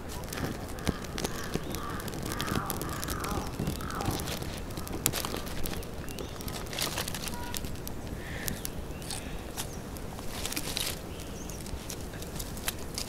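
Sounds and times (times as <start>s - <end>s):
twigs crackling in fire: 0.0s - 13.0s
crows cawing: 0.2s - 9.6s.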